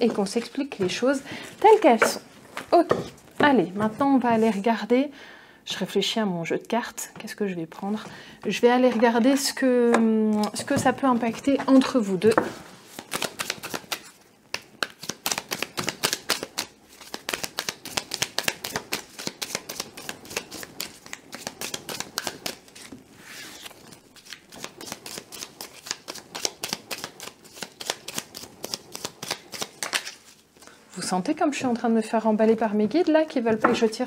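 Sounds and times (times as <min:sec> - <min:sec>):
cards being shuffled: 0:12.9 - 0:30.6.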